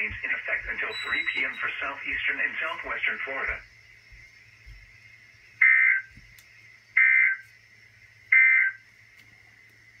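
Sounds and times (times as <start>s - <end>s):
electronic data bursts: 0.0s - 3.7s, 5.5s - 6.1s, 6.9s - 7.5s, 8.3s - 8.9s.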